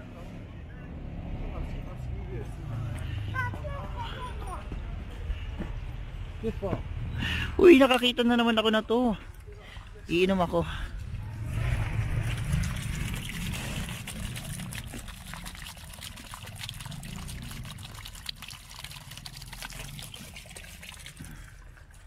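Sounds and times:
fountain water splashing: 11.5s - 22.0s.

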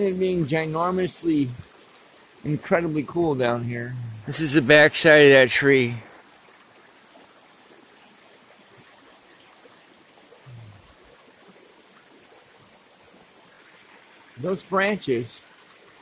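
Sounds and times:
river rushing: 4.2s - 6.4s.

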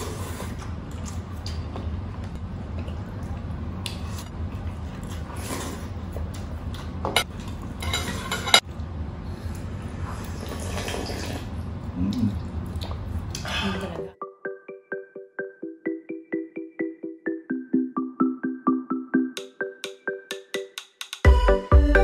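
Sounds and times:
slurping broth: 0.0s - 0.7s, 5.0s - 6.0s, 10.0s - 11.5s
chewing food: 0.5s - 7.6s.

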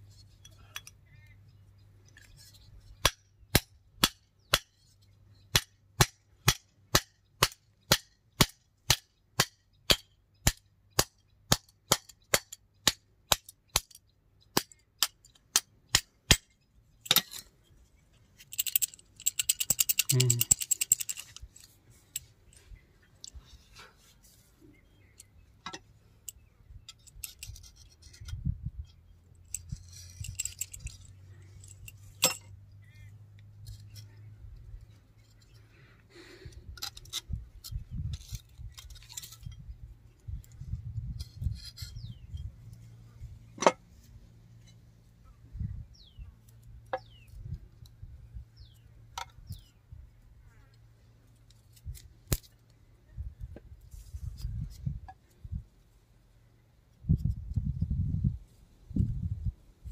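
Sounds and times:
metal parts clicking and clinking: 13.3s - 23.6s, 25.1s - 32.6s, 36.7s - 40.6s.

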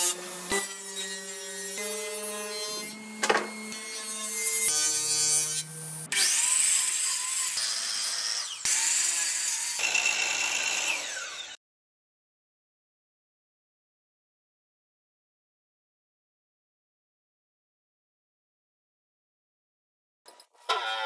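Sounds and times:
miter saw cutting plywood: 0.0s - 11.6s
table saw whining: 0.0s - 11.6s, 20.6s - 21.0s.

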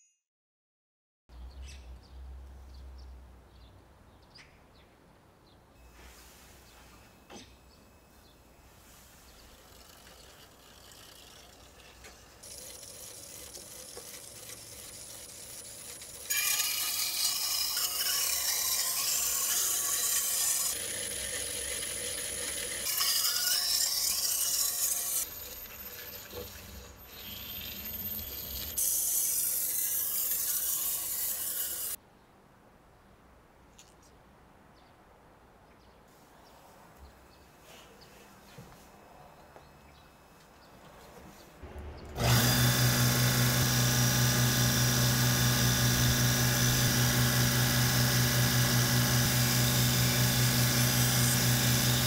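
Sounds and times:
knife grinding on wheel: 9.3s - 32.0s, 42.2s - 52.0s.

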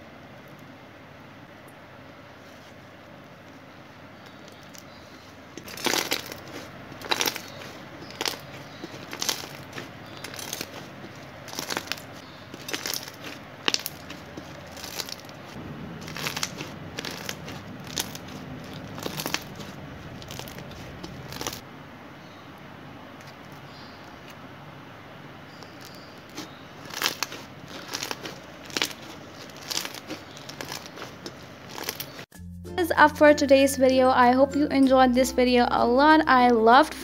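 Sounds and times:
slime crackling and popping: 5.6s - 21.6s, 25.5s - 32.3s.

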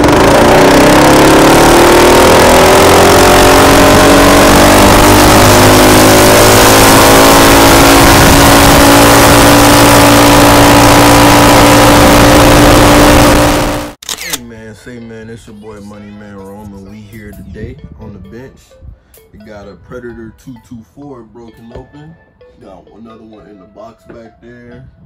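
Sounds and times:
minibike engine accelerating: 0.0s - 14.0s
wind rush on microphone: 7.6s - 10.0s.

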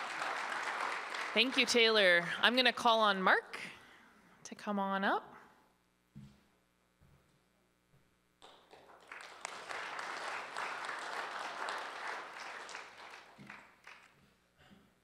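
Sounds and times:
audience applauding: 0.0s - 2.2s, 8.4s - 14.2s.

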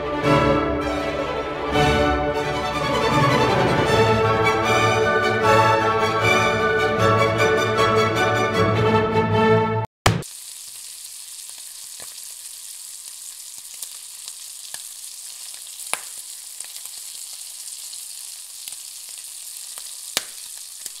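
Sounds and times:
fat popping and crackling: 10.1s - 21.0s
bacon sizzling: 10.2s - 21.0s.

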